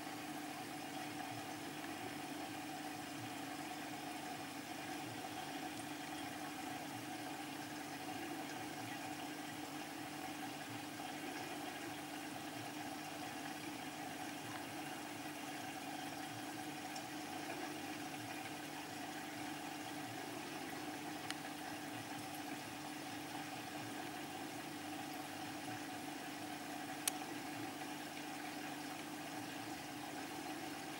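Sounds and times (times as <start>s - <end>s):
aquarium equipment humming: 0.0s - 30.9s.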